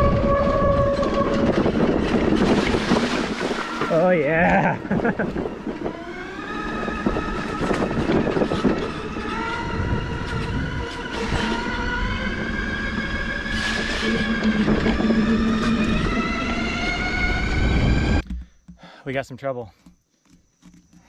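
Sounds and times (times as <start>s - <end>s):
electric drive whining: 0.0s - 18.8s
knocks over bumps: 18.2s - 19.0s.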